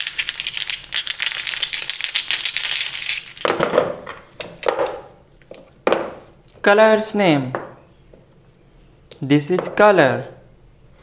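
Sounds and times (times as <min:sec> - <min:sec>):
plastic paint jars rattling: 0:00.0 - 0:04.0.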